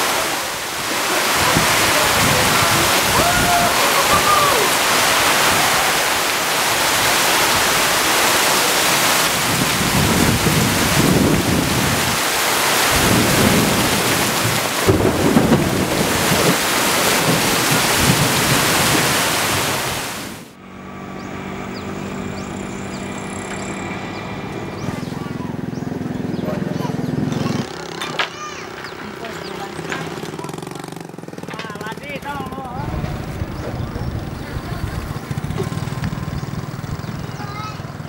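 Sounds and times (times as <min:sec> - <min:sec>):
heavy rain: 0:00.0 - 0:27.5
low rumbles: 0:08.8 - 0:27.7, 0:28.7 - 0:38.0.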